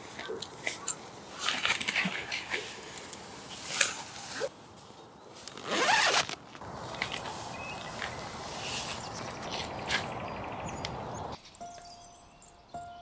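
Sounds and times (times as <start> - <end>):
tent fabric rustling: 1.2 - 10.1.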